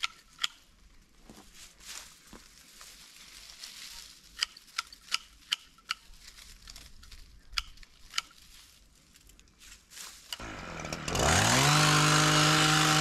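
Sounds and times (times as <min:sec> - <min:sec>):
faint crackling rustle: 0:00.8 - 0:10.4.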